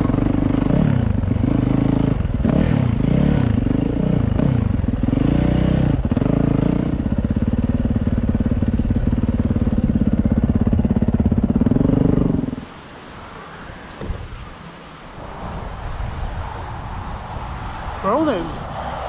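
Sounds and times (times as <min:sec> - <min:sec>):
motorcycle engine revving: 0:00.0 - 0:12.6.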